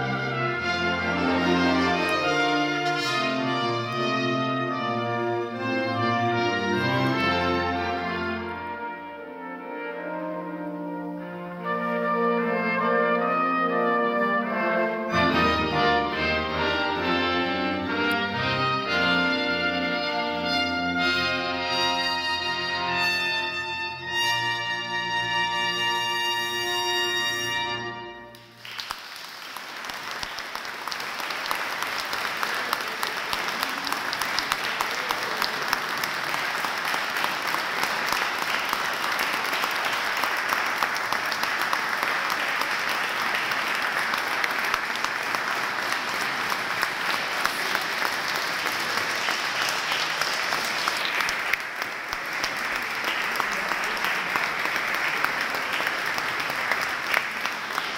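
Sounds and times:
audience applauding: 0:28.3 - 0:57.9.

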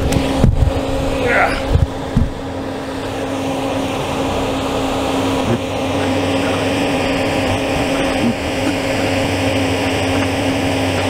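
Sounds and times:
boat machinery humming: 0:00.0 - 0:11.0.

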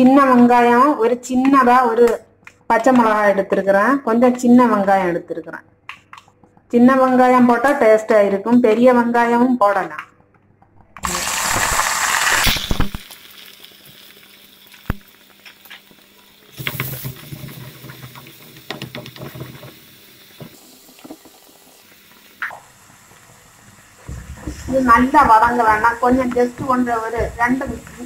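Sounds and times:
vegetables sizzling in hot oil: 0:11.0 - 0:28.0
wooden spatula knocking clay pot: 0:24.1 - 0:28.0.

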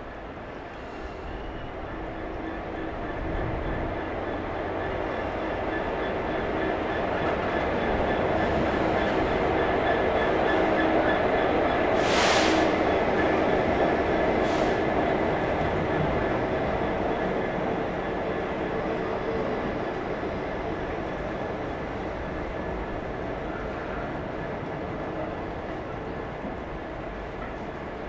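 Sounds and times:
diesel locomotive engine: 0:00.0 - 0:28.0
wagons rumbling on rails: 0:00.0 - 0:28.0
brief hissing bursts: 0:12.0 - 0:12.7.

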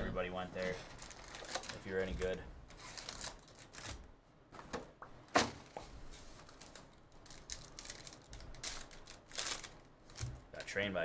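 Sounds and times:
foil wrapper crinkling and tearing: 0:00.6 - 0:04.0, 0:06.4 - 0:10.8.

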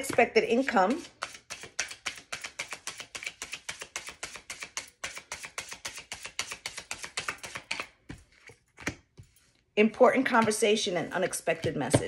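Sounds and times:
cards being shuffled: 0:01.2 - 0:09.3.

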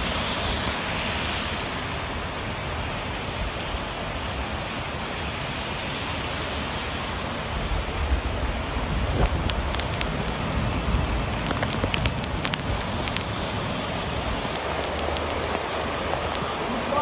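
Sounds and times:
heavy rain falling: 0:00.0 - 0:17.0.

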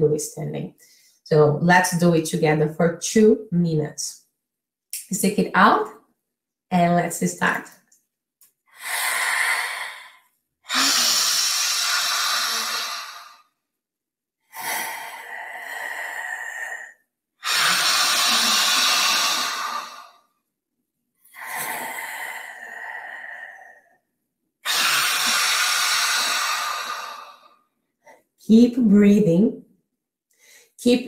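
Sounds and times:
woman breathing forcefully: 0:08.7 - 0:13.6, 0:14.4 - 0:20.3, 0:21.2 - 0:24.0, 0:24.6 - 0:27.7.

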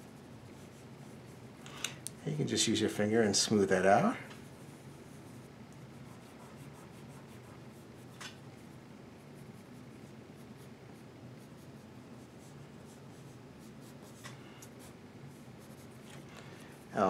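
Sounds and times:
pencil scratching on paper: 0:04.6 - 0:14.2, 0:14.8 - 0:16.1.

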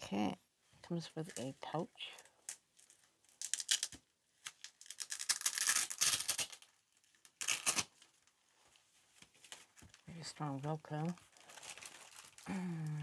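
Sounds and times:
velcro tearing apart: 0:02.5 - 0:08.2.

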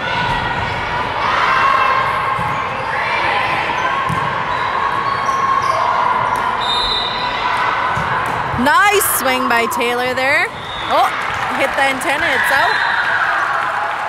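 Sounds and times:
volleyball hits: 0:07.6 - 0:09.0.

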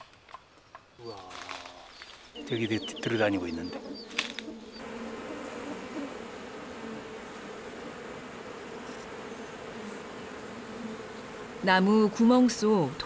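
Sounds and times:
honeybee swarm buzzing: 0:02.4 - 0:13.0.

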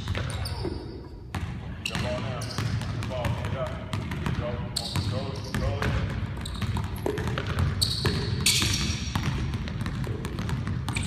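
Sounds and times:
high shoe squeaks: 0:00.0 - 0:01.2, 0:01.8 - 0:02.8, 0:04.7 - 0:05.8, 0:06.4 - 0:09.1
basketball bouncing on wooden floor: 0:00.0 - 0:11.0.

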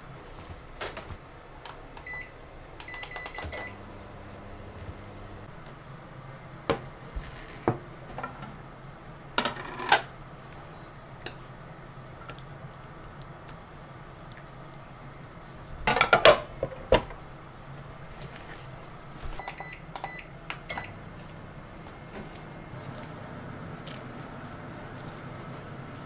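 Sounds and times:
microwave keypad beeps: 0:02.0 - 0:03.8, 0:19.4 - 0:21.0.

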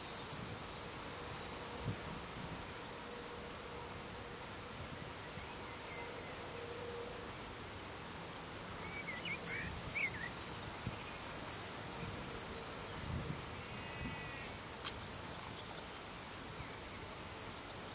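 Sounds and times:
bird singing: 0:00.0 - 0:02.3, 0:08.7 - 0:17.1.

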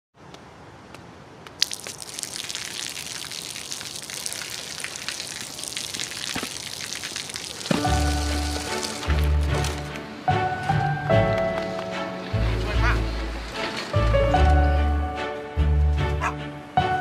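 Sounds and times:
rain falling on pavement: 0:01.5 - 0:10.0.

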